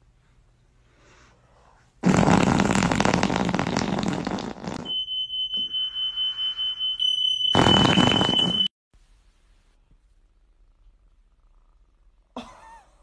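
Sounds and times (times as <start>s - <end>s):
high-pitched electronic tone: 7.0s - 8.7s.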